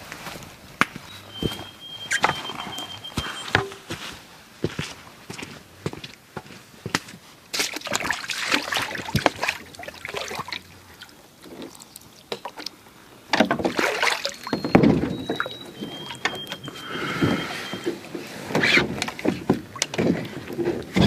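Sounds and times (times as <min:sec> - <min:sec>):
water sloshing: 0:07.5 - 0:21.0.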